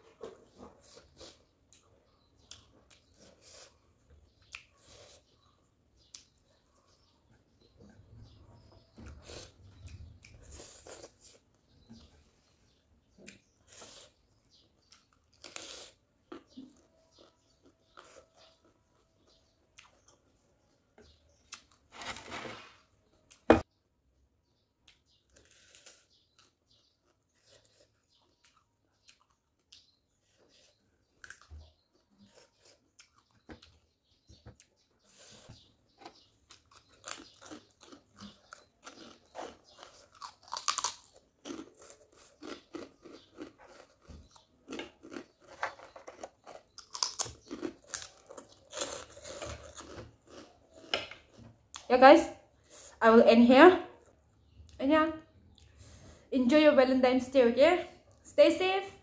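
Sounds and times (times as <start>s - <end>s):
person chewing and crunching: 9.1s - 11.9s, 13.2s - 20.3s, 24.8s - 33.8s, 36.4s - 51.9s.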